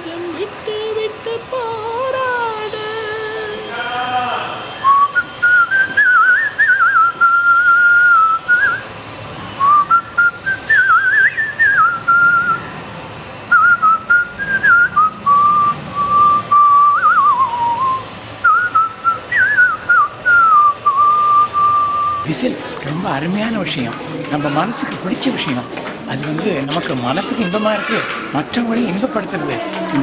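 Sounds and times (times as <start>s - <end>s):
man whistling a melody: 4.7s - 8.9s, 9.6s - 12.7s, 13.5s - 22.3s.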